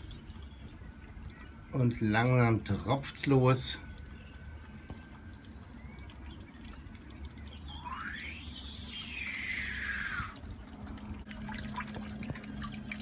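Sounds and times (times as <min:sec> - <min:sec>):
water drops ticking: 0:00.0 - 0:13.0
whistling tone: 0:07.4 - 0:10.4.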